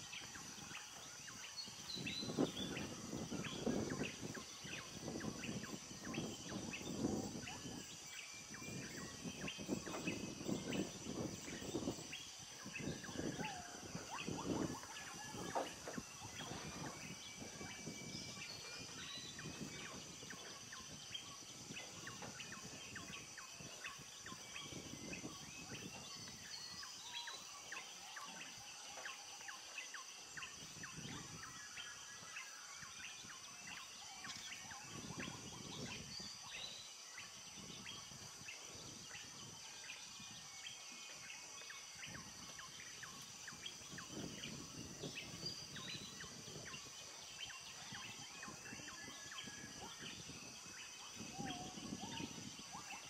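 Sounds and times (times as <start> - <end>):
birds chirping and whistling: 0.0 - 53.0.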